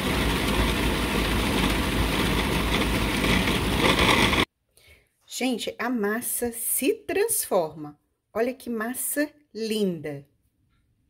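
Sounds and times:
food processor motor running: 0.0 - 4.5.

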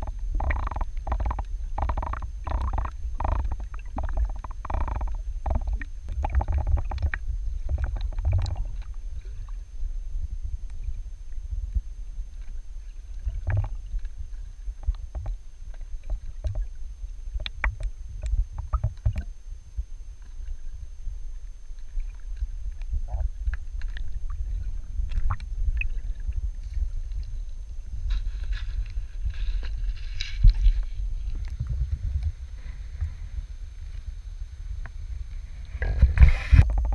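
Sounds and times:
small clicks and ticks: 0.0 - 9.0, 14.8 - 19.3
underwater rumble of moving water: 0.0 - 36.9.

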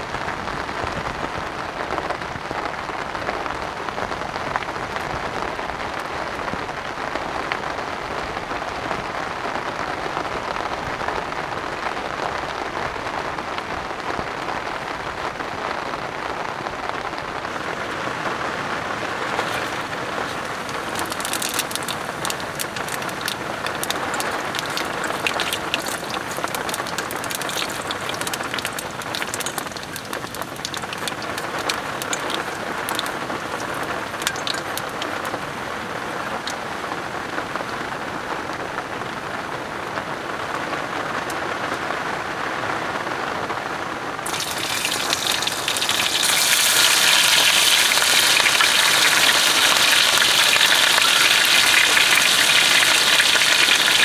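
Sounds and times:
heavy rain on tent fabric: 0.0 - 54.0
sharp raindrop strikes: 19.1 - 37.0, 44.2 - 54.0.

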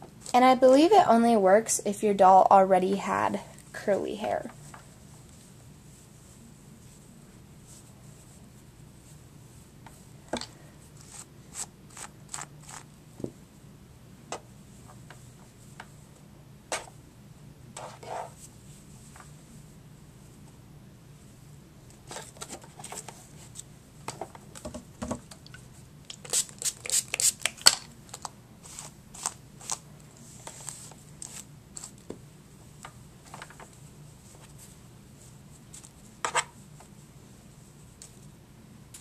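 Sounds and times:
doll hair rustling: 26.1 - 32.1.

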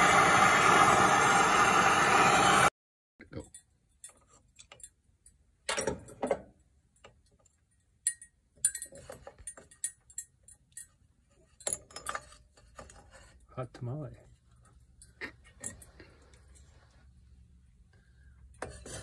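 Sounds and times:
metallic clicks and clinks: 3.3 - 13.5.

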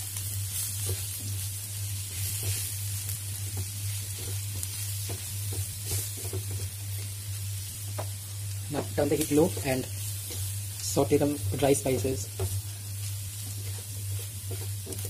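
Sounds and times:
food sizzling in hot oil: 0.0 - 15.0
wooden spatula scraping a pan: 4.0 - 6.8, 13.4 - 15.0.

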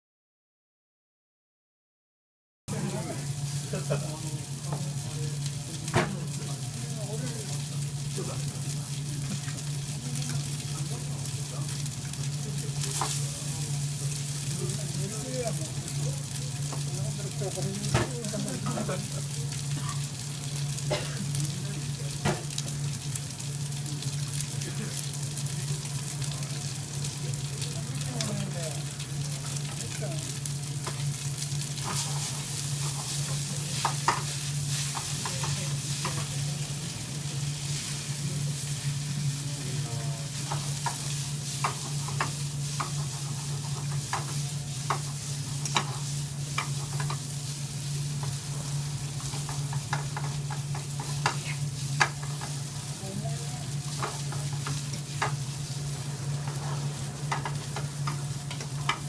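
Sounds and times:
noodles sizzling in a pan: 2.7 - 59.0
steady low hum: 2.7 - 59.0
chopsticks clicking against pan: 41.6 - 47.2, 49.2 - 51.4, 52.0 - 52.6, 57.2 - 59.0.

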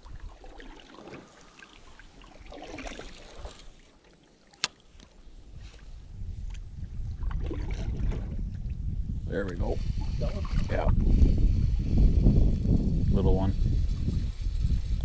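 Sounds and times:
wind rumble on microphone: 0.0 - 1.4, 5.2 - 15.0.

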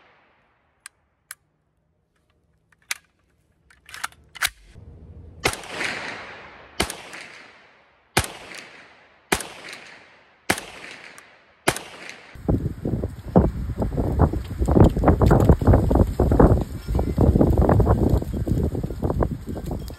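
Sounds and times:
gun clicks: 0.8 - 1.5, 2.1 - 4.8, 6.8 - 7.6, 8.2 - 12.4
gunshots with echo: 5.4 - 12.4.

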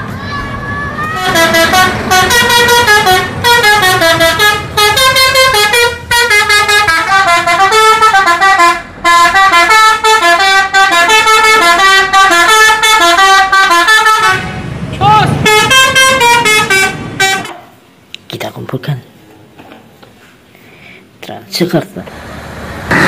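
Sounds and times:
multi-tone musical bus horn: 1.1 - 14.7, 15.3 - 17.7.

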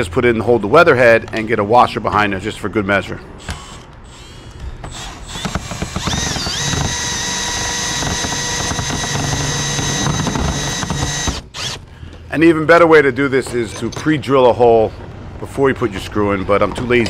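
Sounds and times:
drill motor whining: 3.4 - 11.9.

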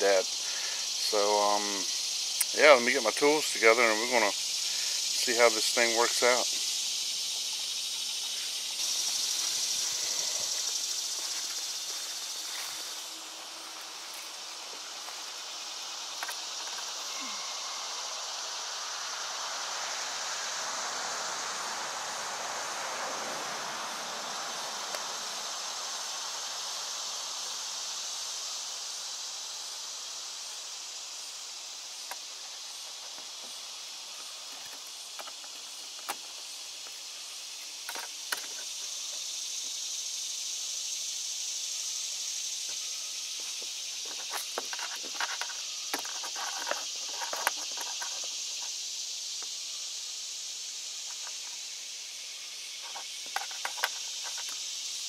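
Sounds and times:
high-pitched hiss: 0.0 - 55.0.

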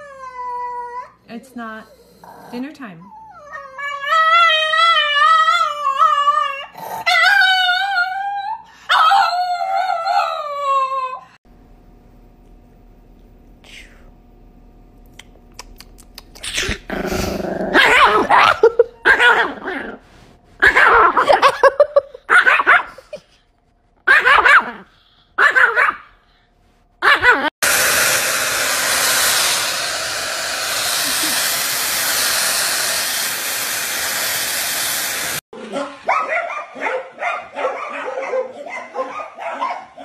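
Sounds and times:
small dog barking and growling: 16.6 - 23.2, 24.0 - 26.2, 27.0 - 27.5, 35.1 - 40.0
hair dryer running: 27.6 - 35.5.

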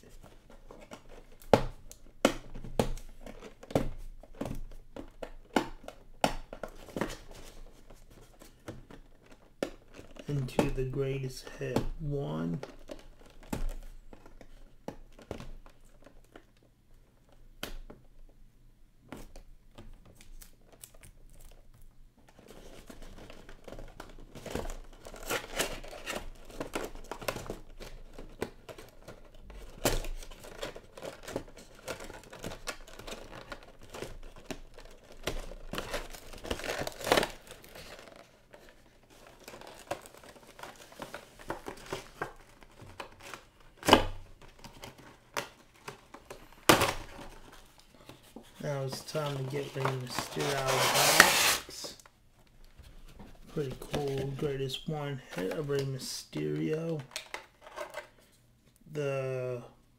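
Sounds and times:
packaging crinkling and tearing: 20.0 - 58.4.

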